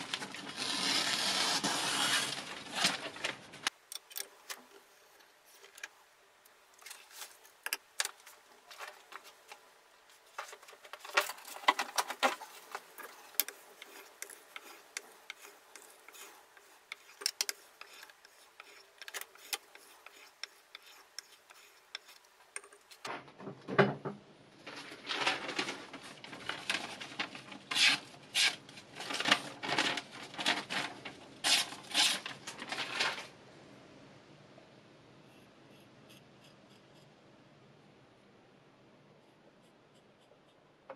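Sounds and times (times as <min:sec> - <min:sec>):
knife sharpening scraping strokes: 0:13.8 - 0:22.2.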